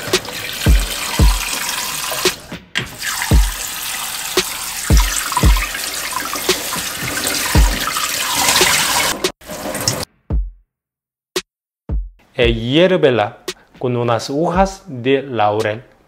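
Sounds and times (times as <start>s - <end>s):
background music with low beat: 0.0s - 3.7s, 4.3s - 9.4s, 10.2s - 10.6s, 11.4s - 15.0s
hands washing meat in water: 0.0s - 10.0s
water splashing in a bowl: 0.0s - 10.1s.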